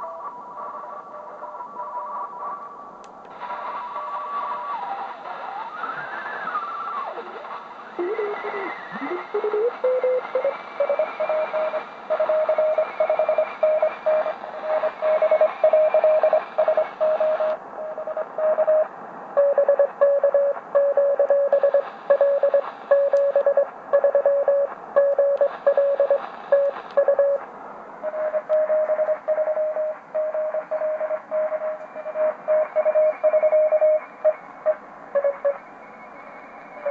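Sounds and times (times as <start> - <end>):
radio band hiss: 0.0 - 36.9
morse code beeping tone: 8.0 - 18.8, 19.4 - 27.4, 28.0 - 35.6.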